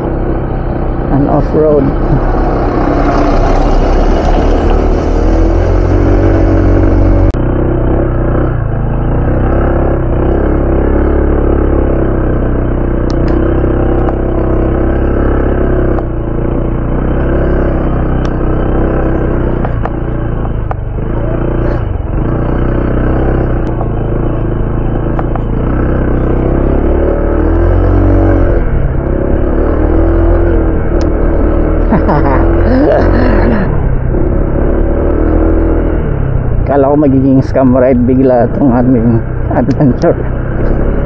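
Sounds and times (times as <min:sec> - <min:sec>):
scooter engine running: 0:00.0 - 0:41.0
rumble and knocks from bumps: 0:19.4 - 0:22.0, 0:23.4 - 0:25.6.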